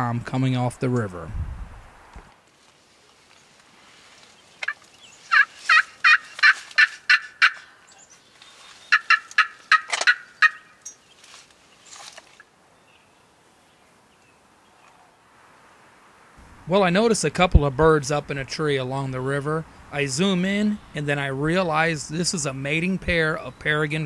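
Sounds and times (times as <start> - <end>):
turkey yelping: 4.6 - 8.1, 8.9 - 10.8.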